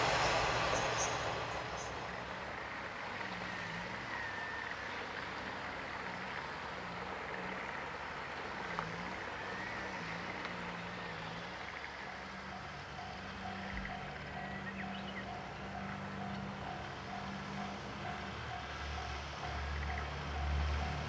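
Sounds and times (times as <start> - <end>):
steady hiss: 0.0 - 2.5.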